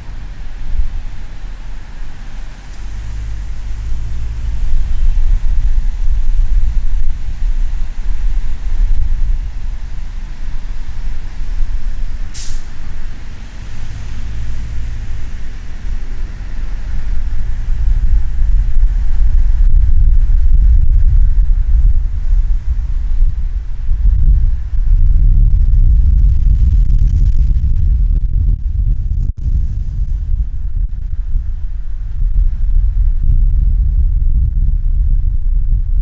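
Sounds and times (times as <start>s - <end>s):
road and wind rumble: 0.0s - 36.0s
short sharp hiss: 12.3s - 12.8s.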